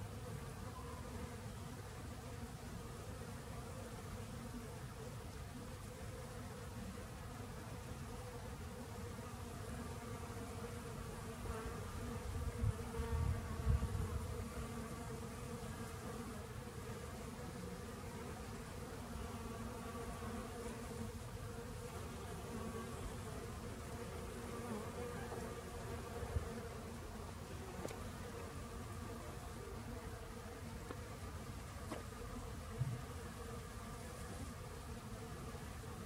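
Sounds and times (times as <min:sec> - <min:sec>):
honeybees buzzing: 0:00.0 - 0:36.0.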